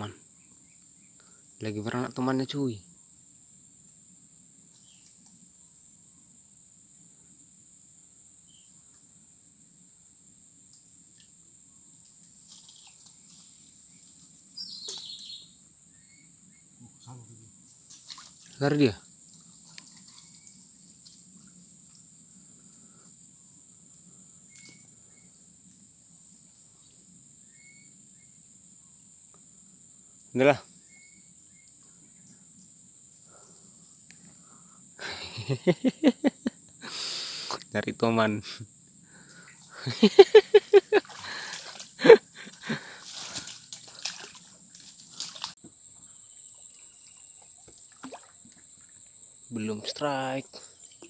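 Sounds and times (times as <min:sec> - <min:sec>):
insects chirring drone: 0:00.0 - 0:51.0
pulsing insect trill: 0:00.0 - 0:51.0
water sloshing and splashing: 0:17.9 - 0:18.6, 0:40.9 - 0:42.1, 0:43.0 - 0:45.6, 0:46.7 - 0:49.0.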